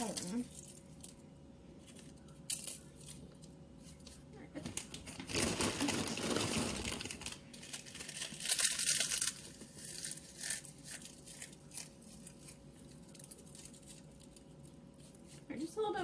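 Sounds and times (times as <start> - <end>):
chips crunching by hand: 5.2 - 15.3.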